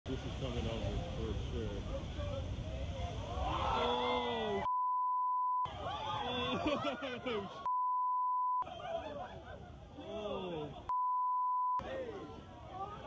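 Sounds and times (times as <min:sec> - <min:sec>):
people shouting and exclaiming: 0:01.9 - 0:04.7, 0:05.6 - 0:07.7, 0:08.6 - 0:10.9, 0:11.8 - 0:13.0
censor bleep: 0:04.7 - 0:05.7, 0:07.7 - 0:08.6, 0:10.9 - 0:11.8.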